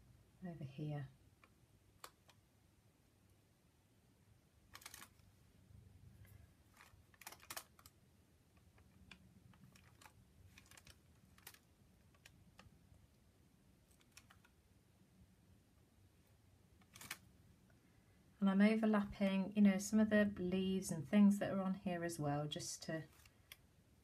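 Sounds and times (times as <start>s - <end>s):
low room hum: 0.0s - 24.0s.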